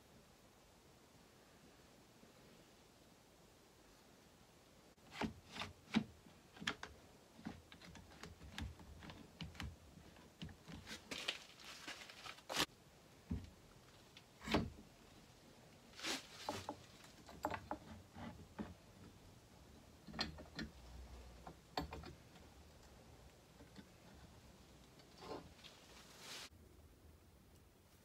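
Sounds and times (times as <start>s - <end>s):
clamps clicking and knocking: 16.5s - 19.2s, 20.0s - 24.4s.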